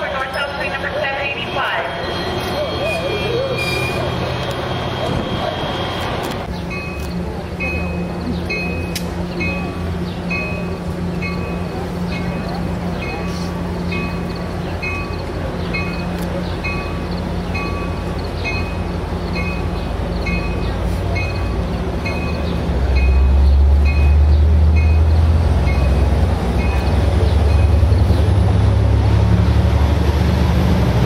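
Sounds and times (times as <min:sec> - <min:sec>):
diesel locomotive drone: 0:00.0 - 0:31.0
train rolling past: 0:00.0 - 0:31.0
warning bell dinging: 0:06.7 - 0:24.2.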